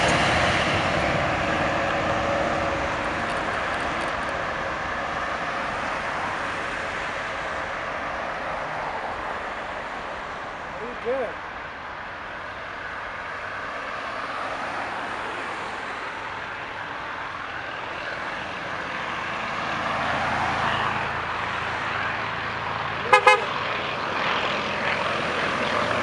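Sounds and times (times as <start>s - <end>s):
horn-like toots: 23.1s - 23.5s.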